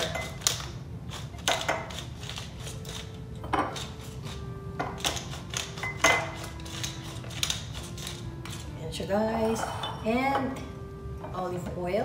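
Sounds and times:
pepper mill grinding: 0:00.0 - 0:08.9.

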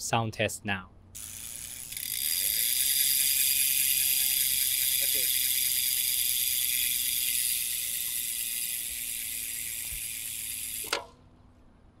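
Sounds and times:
bicycle freehub buzzing: 0:01.1 - 0:11.2
sharp click: 0:10.8 - 0:11.2.

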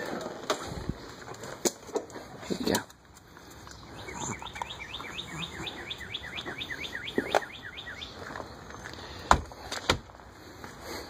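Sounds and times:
songbird chirping: 0:02.7 - 0:10.7.

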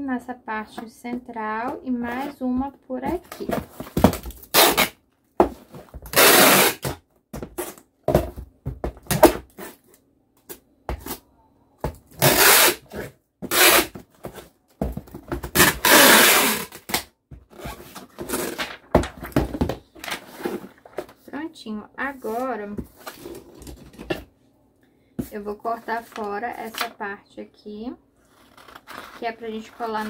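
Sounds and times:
packing tape pulled off roll: 0:06.1 - 0:07.0, 0:15.6 - 0:17.0.

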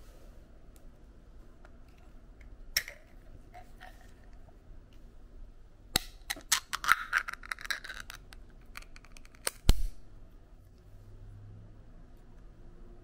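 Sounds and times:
can seal cracking: 0:02.8 - 0:03.1, 0:06.0 - 0:09.9
can lid clicking and scraping: 0:06.0 - 0:09.7.

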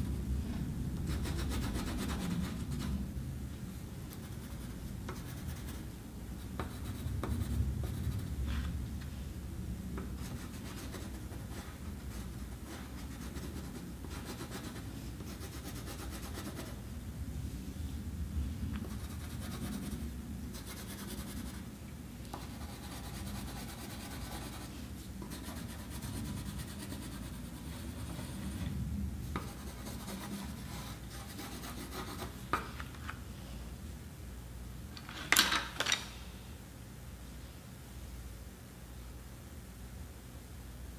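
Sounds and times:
colored pencil scratching on paper: 0:10.2 - 0:16.8, 0:18.8 - 0:21.7, 0:22.3 - 0:28.6, 0:29.4 - 0:32.4.

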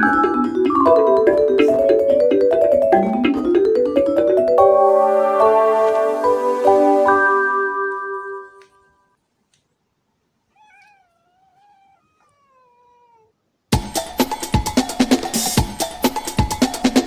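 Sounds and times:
mallet instrument music: 0:00.0 - 0:08.6
cat meowing softly: 0:10.5 - 0:13.4
loud drum-backed music: 0:13.8 - 0:17.0.

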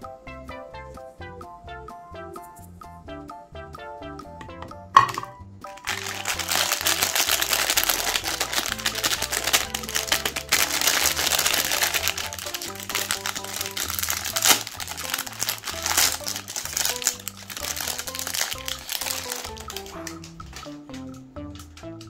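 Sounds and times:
background music with melody: 0:00.0 - 0:22.0
plastic wrapper crinkling: 0:05.8 - 0:20.8.

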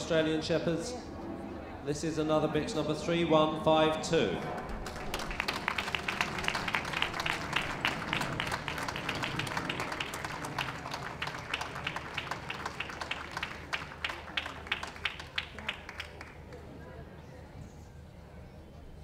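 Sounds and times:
audience applauding: 0:04.6 - 0:16.6.

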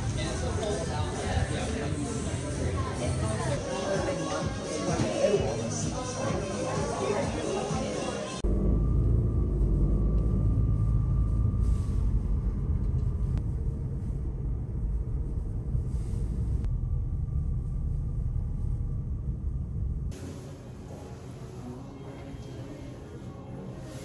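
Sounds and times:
car driving rumble: 0:08.4 - 0:20.2.

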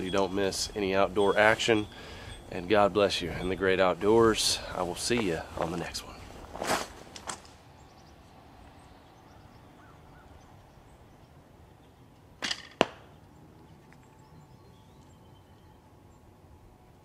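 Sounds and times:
arrow striking target: 0:12.4 - 0:13.2.

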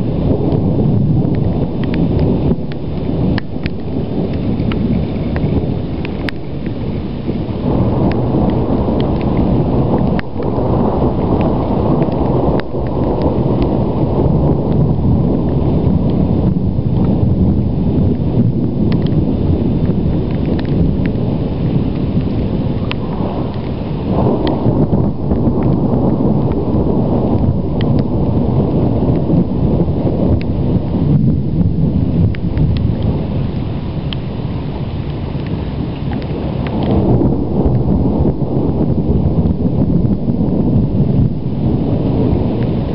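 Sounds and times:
thunder rumbling: 0:00.0 - 0:42.9
light ticks: 0:01.3 - 0:06.8, 0:18.9 - 0:19.2.

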